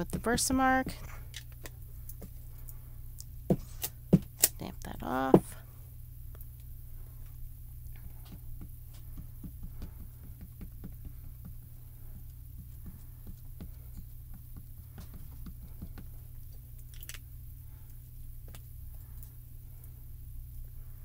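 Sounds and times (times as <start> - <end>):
ink pad tapping on stamp: 8.3 - 11.6.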